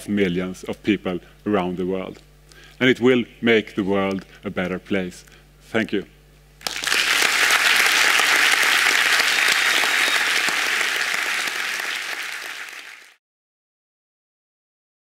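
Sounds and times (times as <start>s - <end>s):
audience applauding: 6.6s - 13.2s.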